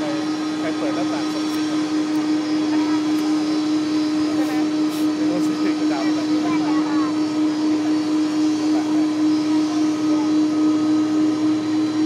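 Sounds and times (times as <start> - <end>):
jet engines running: 0.0 - 12.0.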